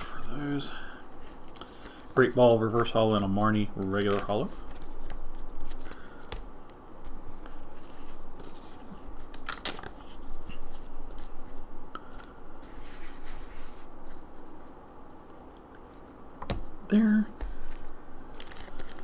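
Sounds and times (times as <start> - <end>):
trading cards sliding and scraping: 7.0 - 16.4.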